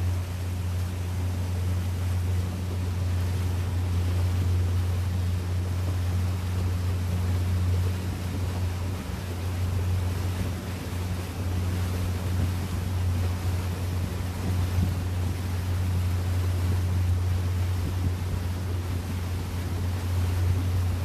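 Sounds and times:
boat engine droning: 0.0s - 21.0s
hiss of water and wind: 0.0s - 21.0s.

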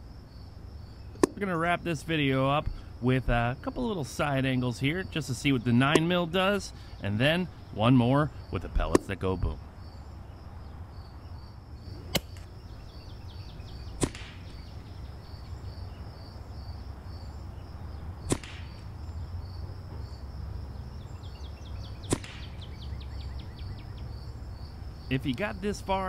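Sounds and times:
crickets chirping: 0.0s - 26.0s
air rifle shots: 14.0s - 14.6s, 18.2s - 19.0s, 22.0s - 22.6s.

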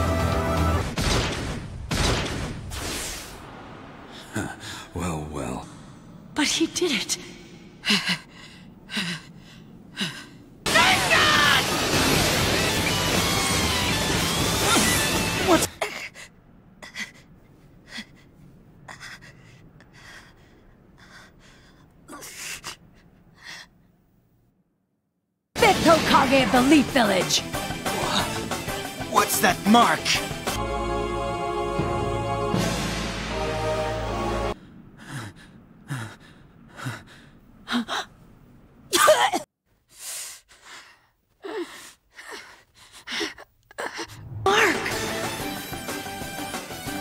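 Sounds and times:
person panting: 7.6s - 10.4s, 34.6s - 38.1s.

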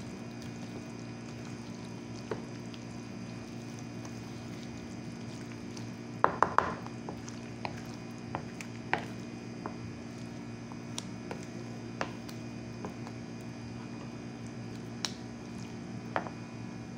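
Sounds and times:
wet squishing of batter: 0.0s - 16.1s
steady low hum: 0.0s - 16.9s
spatula knocking against bowl: 6.2s - 6.8s.

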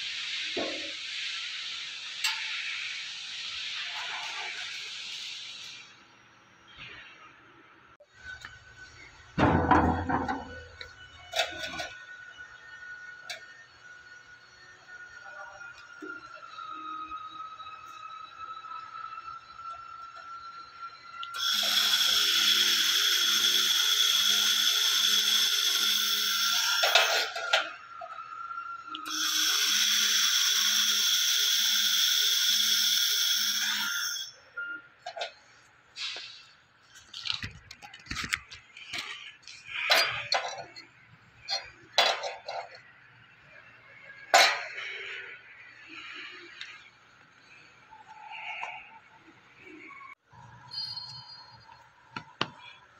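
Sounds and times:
laser welder hissing: 0.0s - 6.0s, 21.3s - 27.3s.

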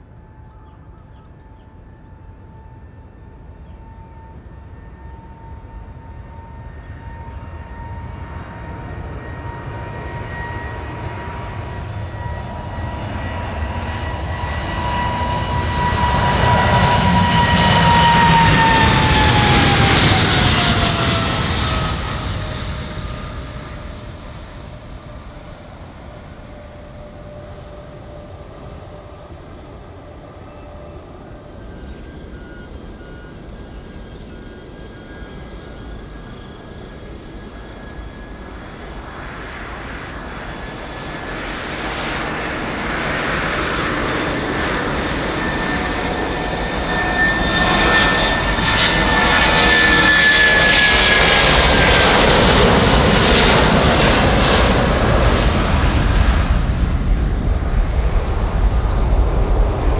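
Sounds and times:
jet engines at takeoff power: 0.0s - 59.9s
high steady whine: 27.0s - 49.5s.

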